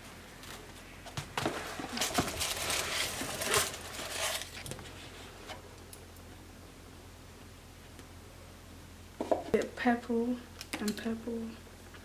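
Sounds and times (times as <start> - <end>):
cardboard box rustling and scraping: 1.4 - 5.0.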